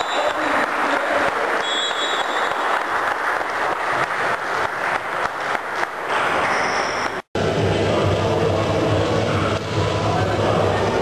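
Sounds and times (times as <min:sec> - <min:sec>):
people cheering: 0:00.0 - 0:07.2
hands clapping: 0:00.0 - 0:07.3.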